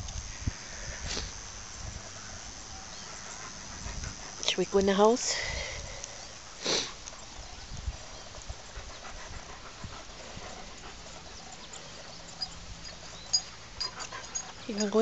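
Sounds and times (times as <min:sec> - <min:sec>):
dog panting softly: 0:02.9 - 0:04.8, 0:08.1 - 0:15.0.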